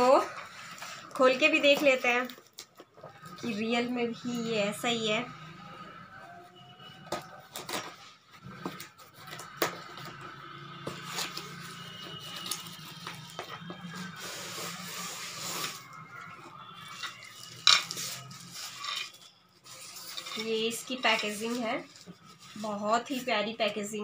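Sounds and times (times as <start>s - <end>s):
plastic wrap rustling: 11.0s - 23.6s.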